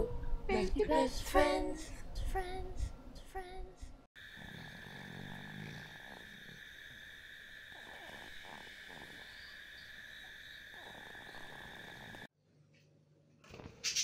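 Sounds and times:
insects chirring: 4.2s - 12.3s.

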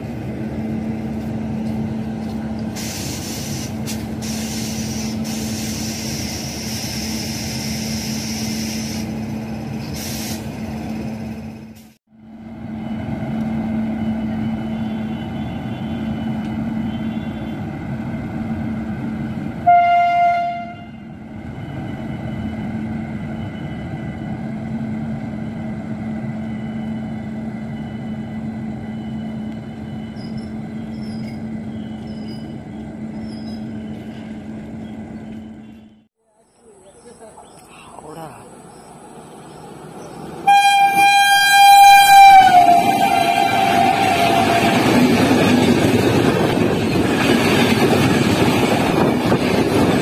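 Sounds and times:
electric locomotive hum: 0.0s - 50.0s
train horn blast: 19.6s - 21.1s, 40.4s - 45.0s.

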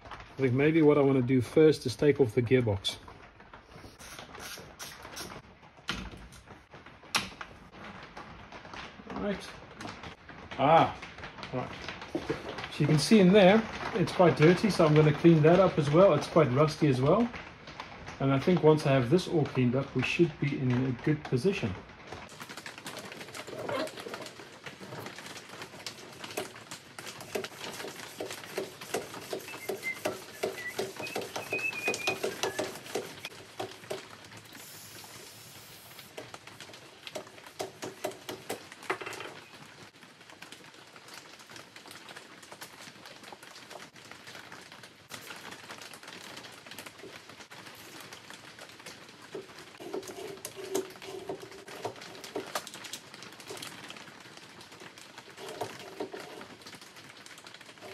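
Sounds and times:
hand tools clicking and tapping: 26.3s - 34.0s, 37.1s - 39.3s, 49.4s - 52.7s.

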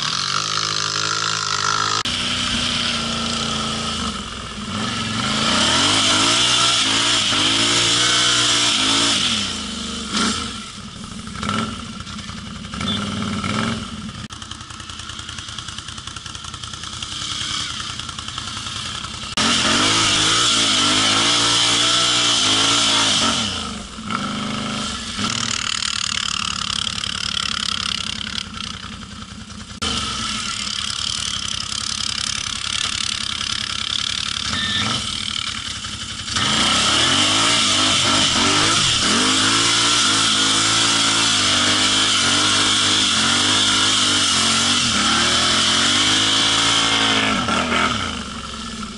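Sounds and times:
atv engine revving: 0.0s - 48.9s.

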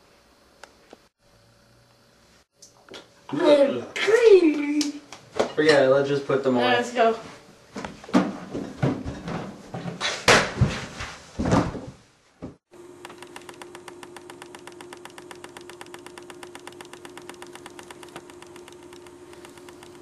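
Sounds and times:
microwave oven humming: 0.0s - 4.9s, 12.7s - 20.0s
fast ticking rattle: 13.1s - 20.0s.

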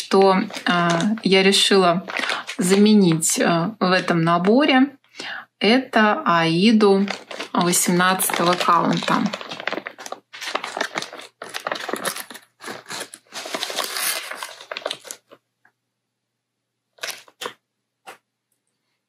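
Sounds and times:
plastic bag crinkling: 0.0s - 3.4s, 6.8s - 15.4s, 17.0s - 17.6s.

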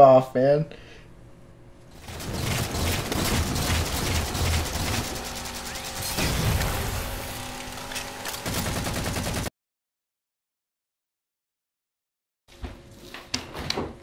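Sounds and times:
rapid gunfire: 1.9s - 7.3s, 8.4s - 9.5s.

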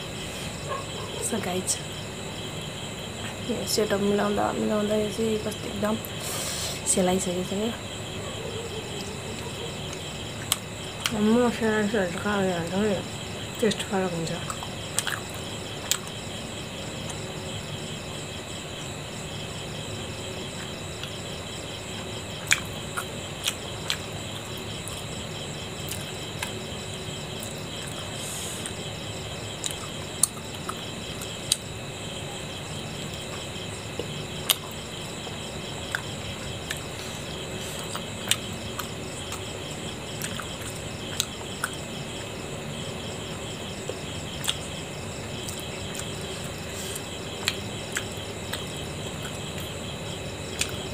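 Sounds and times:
crickets chirring: 0.0s - 50.9s
chewing with wet mouth clicks: 9.0s - 11.2s, 14.5s - 15.3s, 22.4s - 24.0s, 40.2s - 41.8s, 43.9s - 44.6s, 46.8s - 49.7s, 50.6s - 50.8s.

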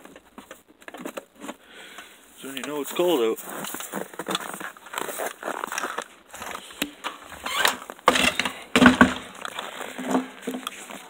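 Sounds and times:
footsteps crunching in frozen snow: 2.2s - 8.1s, 9.3s - 11.0s.

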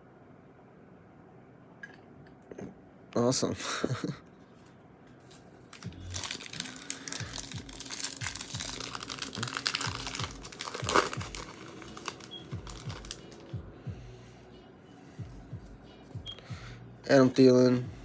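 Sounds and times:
foil wrapper tearing and crinkling: 5.2s - 13.5s.

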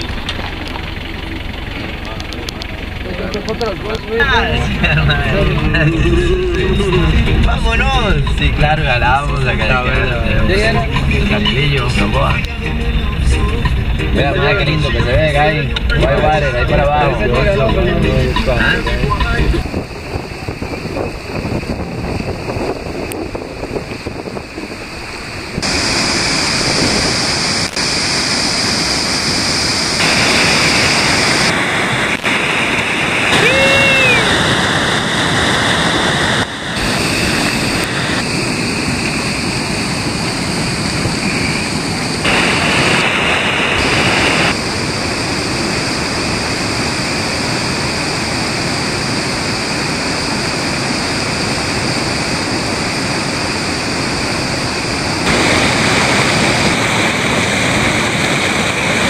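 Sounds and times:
water rushing through rapids: 23.9s - 59.0s.

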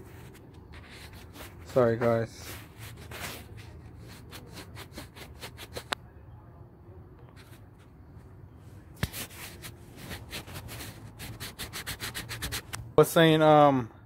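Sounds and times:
fingers rubbing on camera: 0.0s - 1.7s, 2.4s - 6.0s, 9.0s - 12.8s.

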